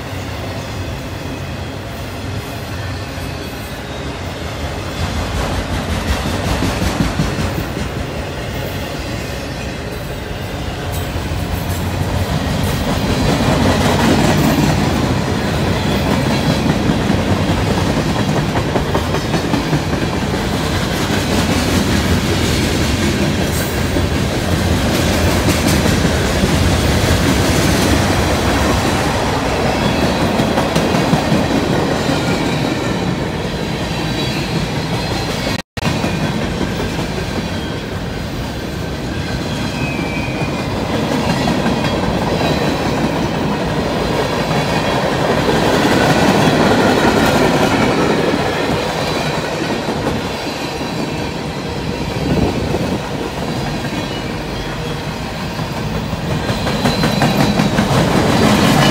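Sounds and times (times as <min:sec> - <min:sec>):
train wheels clickety-clack: 0:02.0 - 0:58.9
high wheel squeal: 0:37.5 - 0:43.4, 0:50.1 - 0:57.9.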